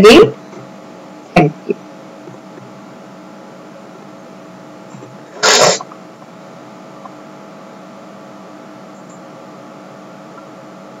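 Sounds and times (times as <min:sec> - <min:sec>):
faint electrical hum: 0:00.0 - 0:11.0
microphone hiss: 0:03.4 - 0:06.3.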